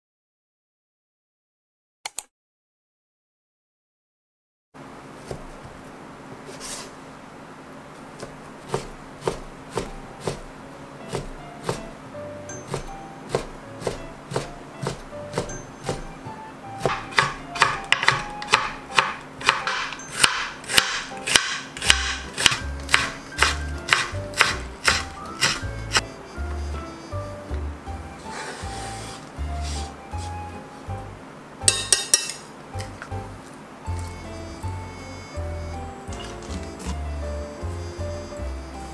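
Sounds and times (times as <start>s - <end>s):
knife chopping on cutting board: 8.2s - 10.5s, 11.1s - 11.9s, 12.6s - 26.5s, 36.1s - 37.1s.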